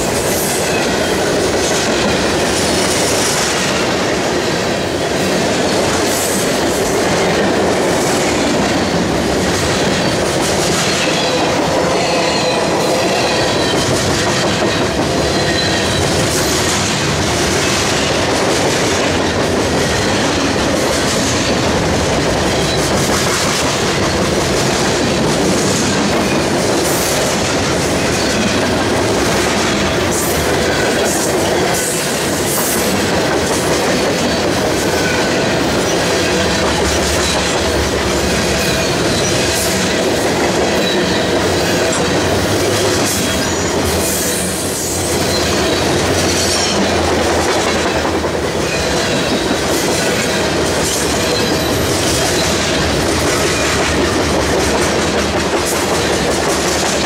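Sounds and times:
freight train wheels rumbling: 0.0 - 57.0
train wheel squeals: 9.8 - 18.3, 22.4 - 24.3, 33.9 - 47.1, 48.6 - 53.9.

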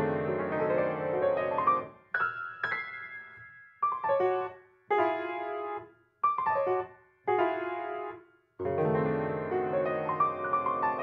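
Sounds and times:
grand piano playing: 0.0 - 3.3, 7.4 - 11.0.

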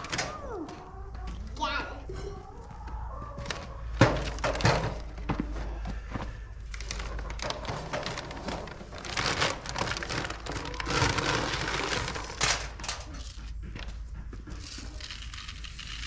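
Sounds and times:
feed bag crinkling: 6.4 - 13.4.

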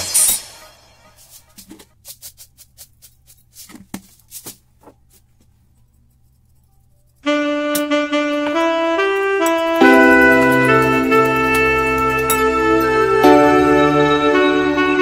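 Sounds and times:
seeds rattling in plastic shaker: 1.2 - 12.5
loud music with saxophone notes: 7.3 - 15.0.

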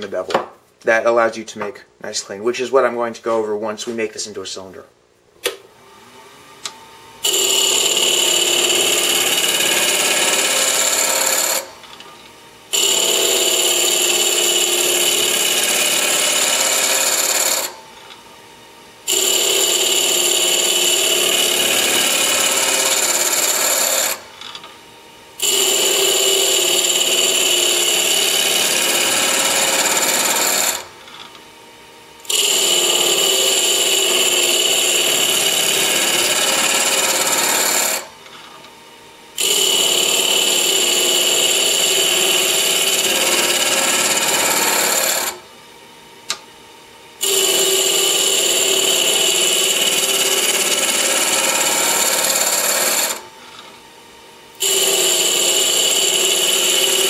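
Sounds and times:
lathe gouge rasping wood: 32.3 - 38.0.

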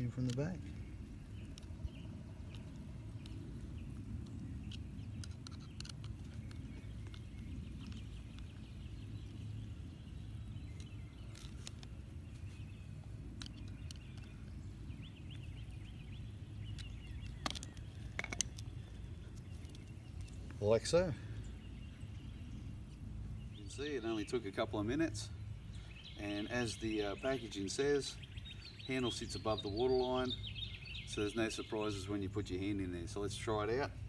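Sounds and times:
screwdriver clicks and creaks: 0.0 - 0.8, 4.2 - 8.5
low outdoor rumble: 0.0 - 34.0.

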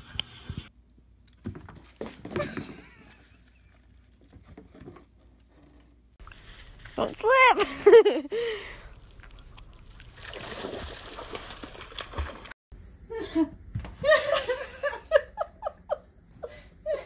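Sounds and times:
dog splashing through ice and water: 6.2 - 7.6, 8.7 - 12.6
person speaking: 6.9 - 8.3
person laughing: 7.6 - 8.6.

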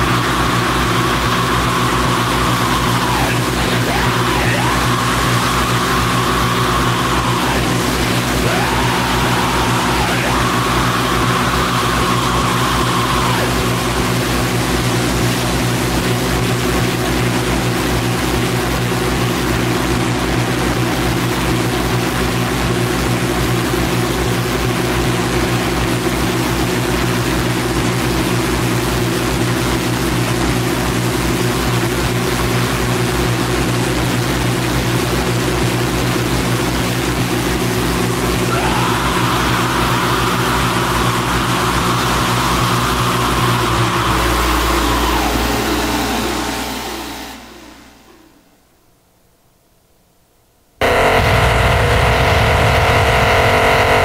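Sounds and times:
low droning hum: 0.0 - 23.8, 33.9 - 48.6, 50.8 - 54.0
fast low throbbing pulse: 0.0 - 48.4, 50.8 - 54.0.

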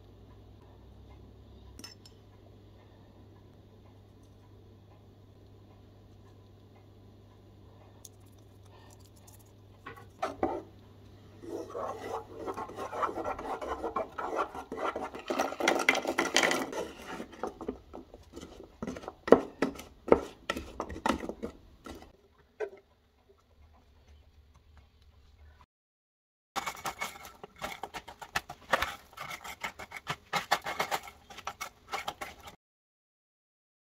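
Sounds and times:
spatula scraping nuts in saucepan: 11.4 - 22.2, 26.6 - 32.6.

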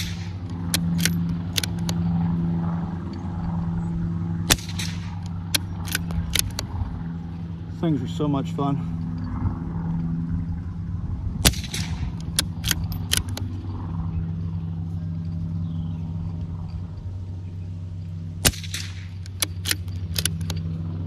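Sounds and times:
suppressed rifle shots: 0.0 - 2.0, 4.4 - 6.7, 11.4 - 13.5, 18.4 - 20.5
rifle bolt clicks: 0.0 - 2.1, 4.5 - 6.7, 11.6 - 13.6, 18.5 - 20.7
steady low hum: 0.0 - 21.0.

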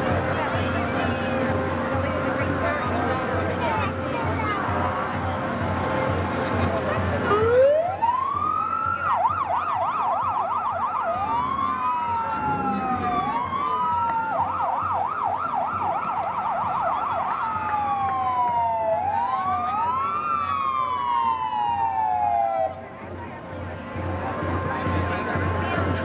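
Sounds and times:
electronic siren wailing and yelping: 7.3 - 22.4.

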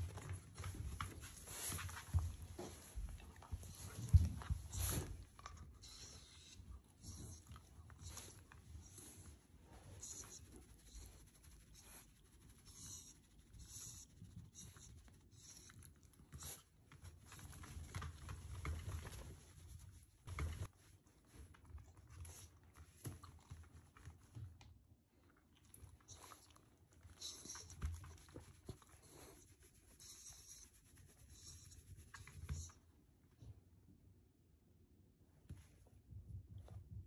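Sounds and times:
hand rustling dog fur: 0.0 - 15.7, 27.2 - 32.8.

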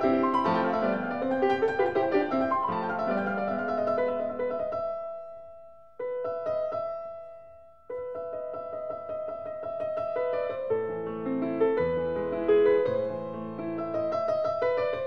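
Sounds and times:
background piano music: 0.0 - 15.0.

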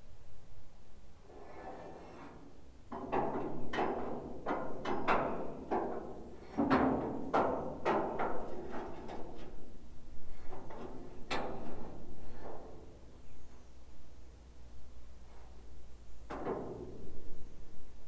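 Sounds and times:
metal knocks and clanks: 2.9 - 13.2, 16.2 - 17.3.

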